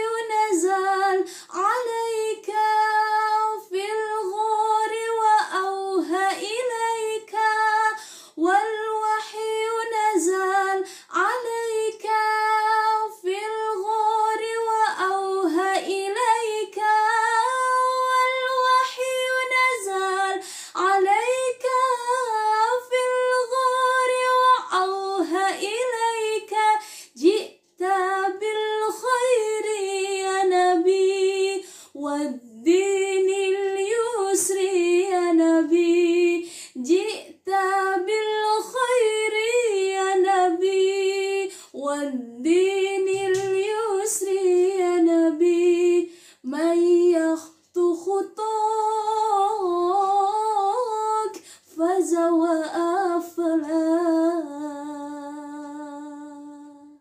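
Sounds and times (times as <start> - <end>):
woman singing solo: 39.9 - 46.0.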